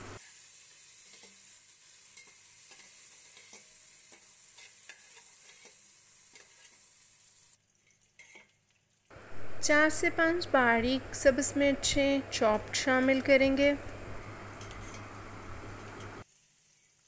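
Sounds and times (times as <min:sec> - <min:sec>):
onions sizzling in oil: 0:00.0 - 0:07.6, 0:09.2 - 0:17.0
spatula scraping a steel pot: 0:02.2 - 0:06.8, 0:14.6 - 0:15.1.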